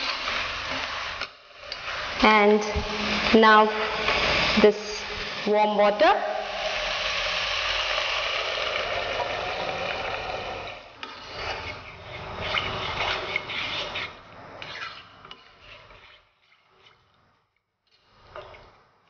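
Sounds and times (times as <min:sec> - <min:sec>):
water pouring into pot: 0:06.3 - 0:11.0
ladle stirring and scraping: 0:06.6 - 0:19.0.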